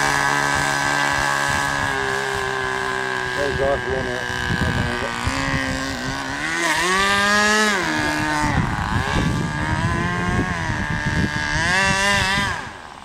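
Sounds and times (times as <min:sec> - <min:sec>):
model boat engine revving: 0:00.0 - 0:13.0.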